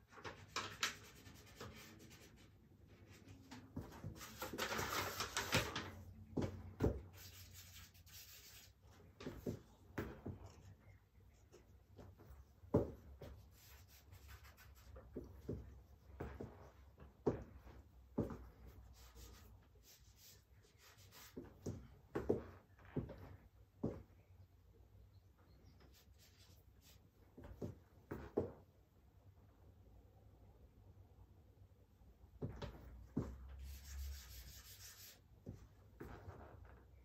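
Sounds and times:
charcoal scratching on paper: 6.8 - 9.6, 13.2 - 15.0, 33.6 - 35.2.

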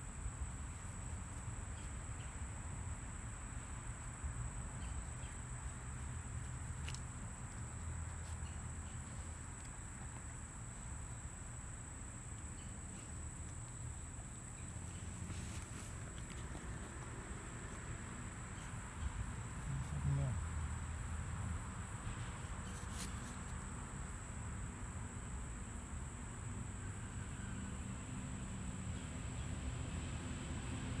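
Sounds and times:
high-pitched insect song: 0.0 - 31.0.

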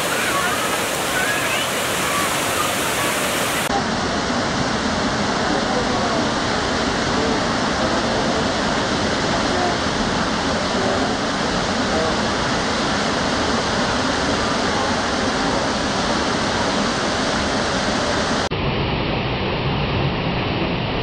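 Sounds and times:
waterfall crashing onto rock: 0.0 - 3.7.

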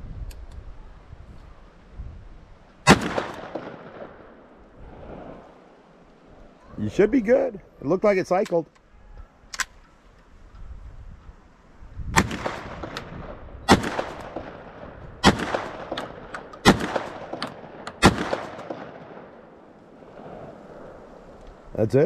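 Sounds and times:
shotgun shots with echo: 2.9 - 4.2, 12.2 - 19.3.

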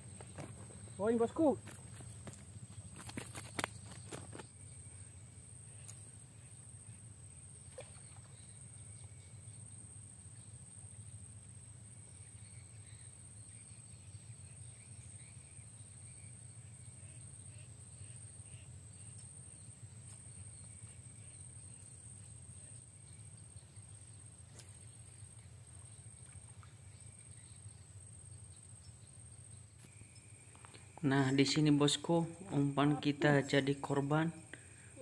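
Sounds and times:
high insect trill: 0.0 - 35.0
faint bird chirps: 3.7 - 11.2.

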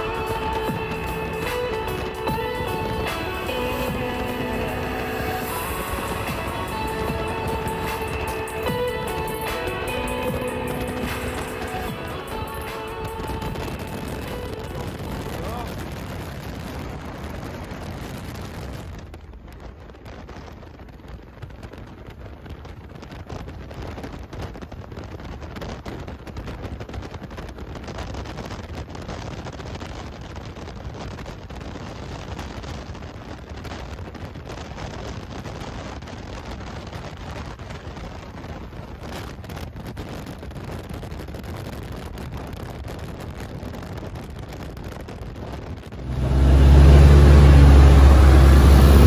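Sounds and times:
wind buffeting microphone: 0.0 - 49.0
outboard engines at full speed: 45.9 - 49.0.

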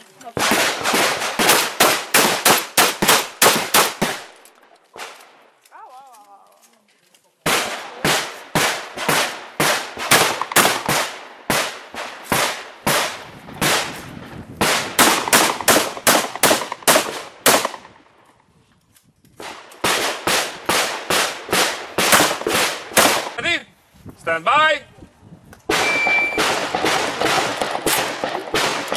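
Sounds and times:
shotgun shots: 0.3 - 4.4, 7.4 - 14.0, 14.6 - 18.0, 19.4 - 23.4, 25.7 - 28.9.

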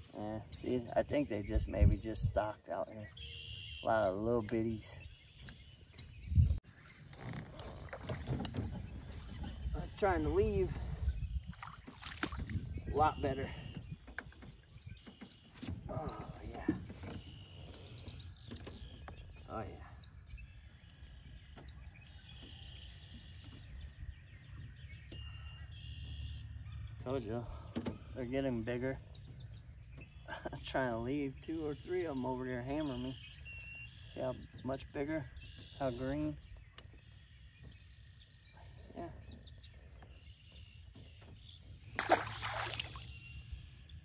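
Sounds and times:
water splashing: 11.5 - 12.9, 41.9 - 43.4.

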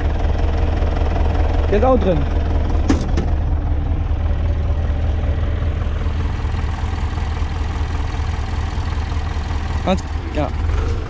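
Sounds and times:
diesel tractor engine idling: 0.0 - 11.0.

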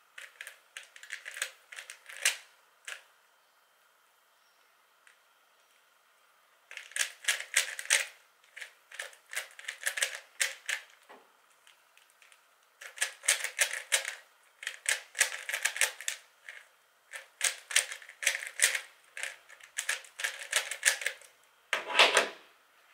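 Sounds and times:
puzzle cube plastic clicks: 0.2 - 3.0, 6.7 - 11.0, 11.6 - 21.3.

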